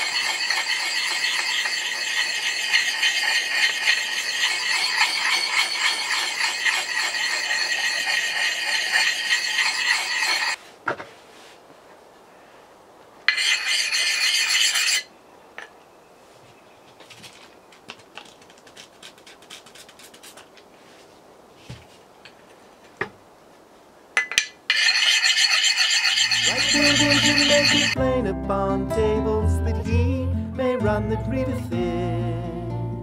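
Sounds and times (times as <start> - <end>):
sharpening stone scraping axe: 0.0 - 10.6, 13.3 - 15.1, 24.7 - 28.0.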